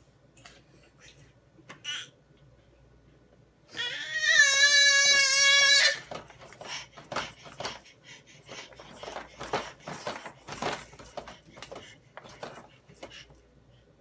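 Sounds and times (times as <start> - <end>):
baby squealing: 3.8 - 6.0
plastic toys tapping and clattering: 6.0 - 7.8, 8.6 - 13.2.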